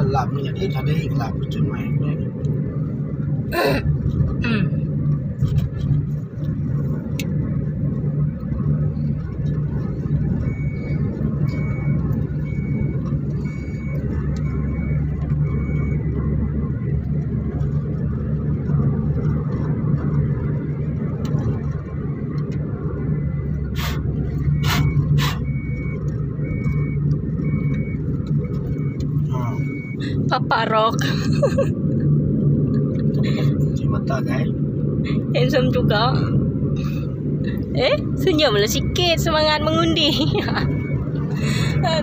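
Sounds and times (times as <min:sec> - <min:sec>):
car engine hum: 0:00.0 - 0:42.0
faint high beep: 0:28.8 - 0:30.0.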